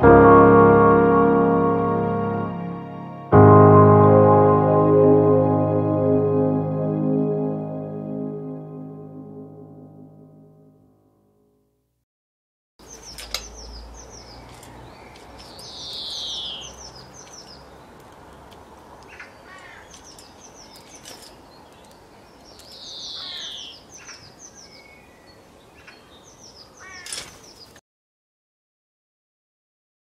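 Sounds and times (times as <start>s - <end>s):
birds chirping: 12.8s - 27.8s.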